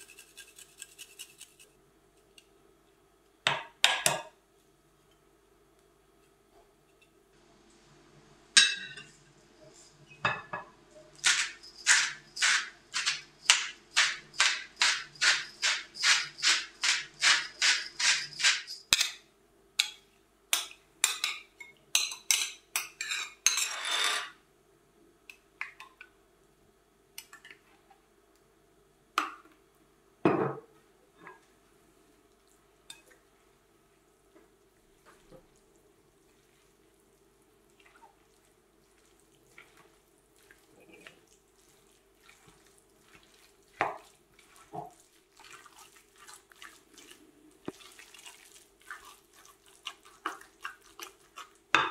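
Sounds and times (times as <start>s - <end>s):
garlic grated on metal grater: 0.0s - 1.7s, 11.2s - 18.8s
metal spoon scraping glass dish: 15.2s - 18.7s, 23.0s - 24.3s.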